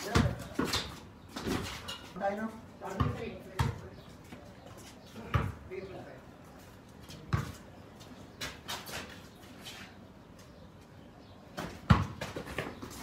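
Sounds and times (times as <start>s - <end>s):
basketball bouncing on pavement: 0.0s - 1.8s, 2.8s - 4.4s, 5.2s - 5.7s, 7.1s - 7.7s, 11.6s - 13.0s.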